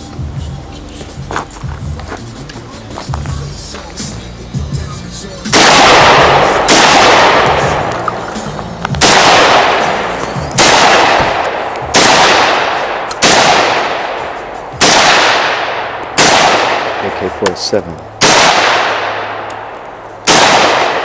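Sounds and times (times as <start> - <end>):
rifle shots echoing: 5.4 - 8.4, 9.0 - 21.0.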